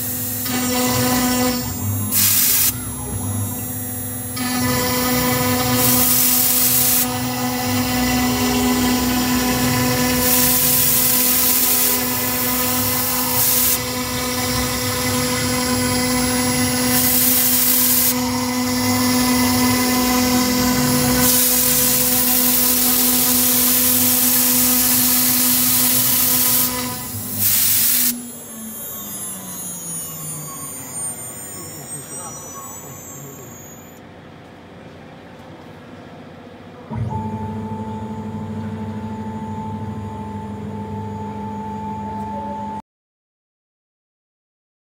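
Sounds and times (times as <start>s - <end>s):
router spindle whine: 0.0s - 34.1s
bit cutting hiss: 1.3s - 2.9s, 5.7s - 7.2s, 10.2s - 13.9s, 15.0s - 34.0s.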